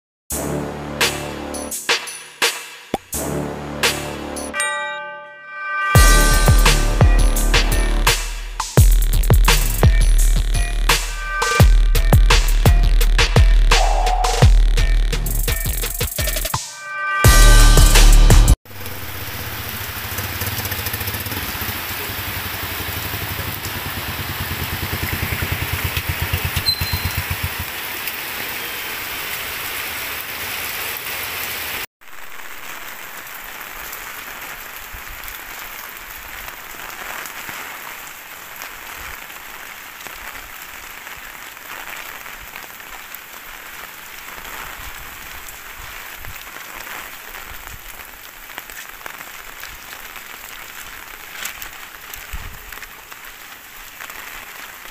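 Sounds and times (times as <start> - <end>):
heavy rain on concrete: 18.6 - 54.9
motorcycle engine running: 18.7 - 27.7.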